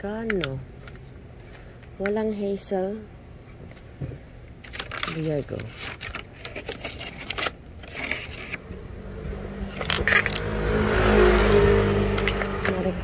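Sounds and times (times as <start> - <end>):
low steady hum: 0.0 - 13.0
plastic drink pouches shuffling: 4.6 - 8.6, 12.2 - 13.0.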